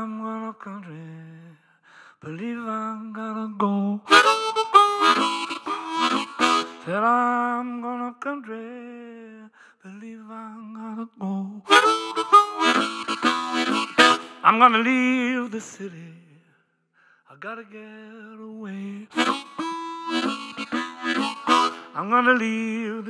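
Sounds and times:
harmonica playing: 4.1s - 7.1s, 11.7s - 15.0s, 19.1s - 22.7s.

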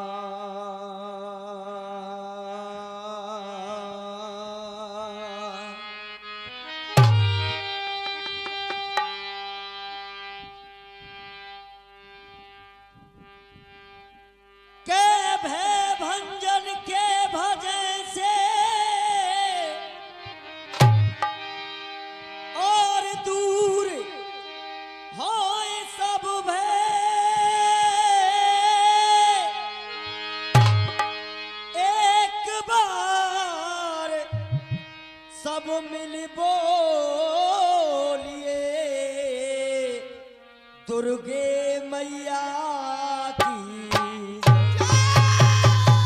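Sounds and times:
instrumental drone: 29.4s - 32.0s
person singing long notes: 41.0s - 46.0s.

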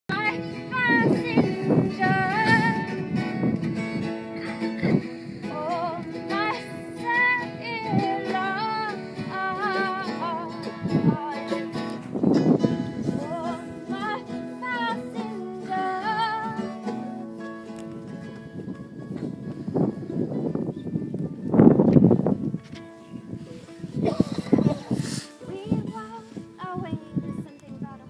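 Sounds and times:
person singing with vibrato: 0.1s - 3.3s, 4.8s - 11.8s, 13.0s - 16.8s
plucked acoustic string instrument: 0.1s - 28.0s.

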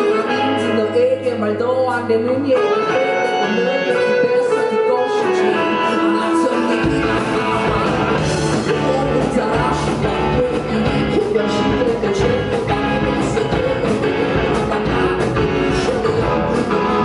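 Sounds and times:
electric guitars: 0.0s - 17.0s
drum kit steady beat: 6.8s - 17.0s.

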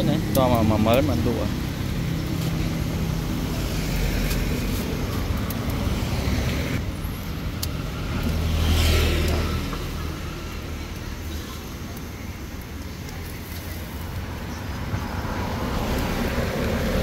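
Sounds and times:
road traffic rumbling: 0.0s - 17.0s
vehicle passing close by: 8.0s - 10.6s, 14.3s - 17.0s.

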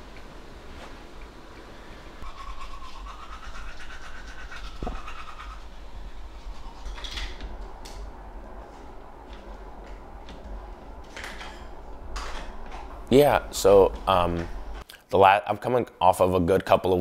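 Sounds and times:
toothbrush scrubbing teeth: 2.2s - 7.4s.

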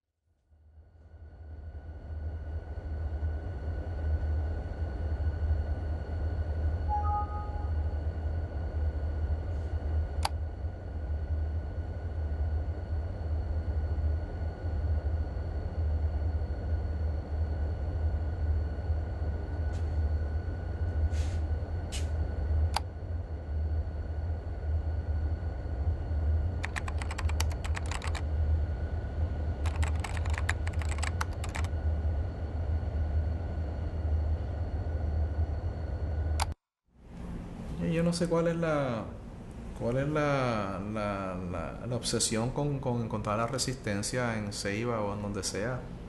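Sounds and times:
faint high whine: 0.4s - 46.0s
steady low hum: 0.4s - 46.0s
rapid clicking: 26.6s - 28.2s, 29.6s - 31.7s.

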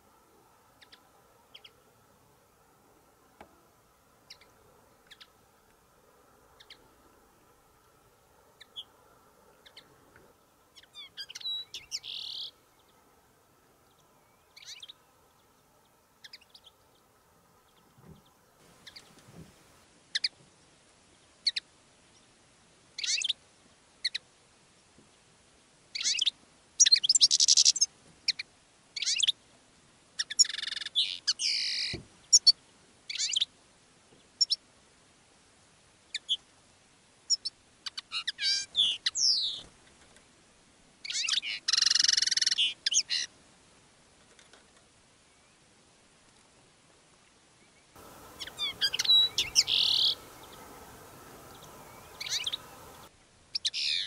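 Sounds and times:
finches chirping and twittering: 17.7s - 19.2s, 23.0s - 23.4s, 26.0s - 28.4s, 29.0s - 29.3s, 41.0s - 43.3s, 48.0s - 54.0s.

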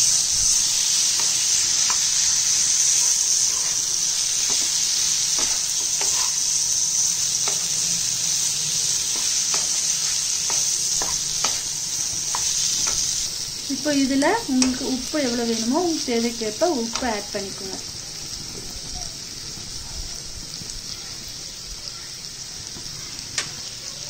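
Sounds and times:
liver frying in oil: 0.0s - 24.0s
spatula scraping a pan: 0.3s - 13.4s.

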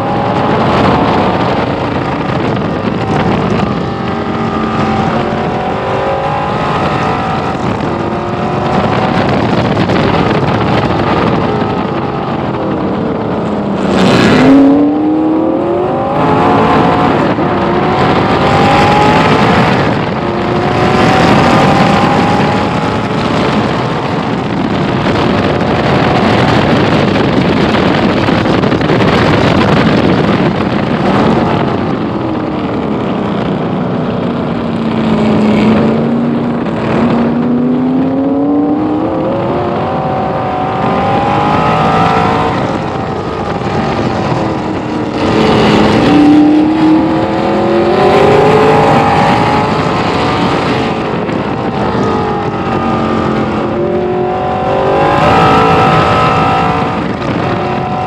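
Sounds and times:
race car engine accelerating: 0.0s - 58.0s.

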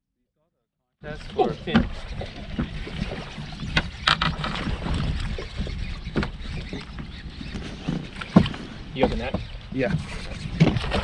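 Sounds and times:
low rumble of wind and water: 1.0s - 11.0s
sharp knocks and clicks: 1.7s - 4.7s, 5.3s - 11.0s.

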